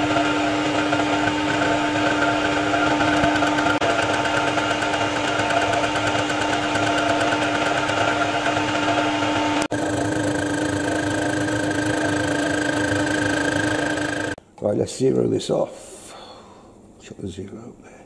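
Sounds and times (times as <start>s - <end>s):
lathe machine whine: 0.0s - 14.4s.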